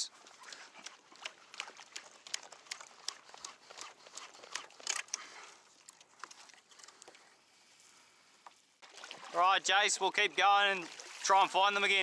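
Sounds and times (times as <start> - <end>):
paddle splashing in water: 8.8 - 9.5, 10.6 - 12.0.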